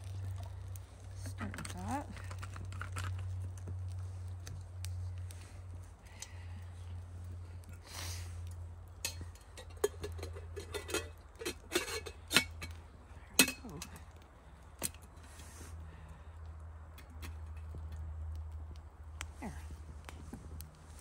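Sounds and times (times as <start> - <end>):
metal lid and handle clinking: 9.0 - 12.8, 13.4 - 14.0.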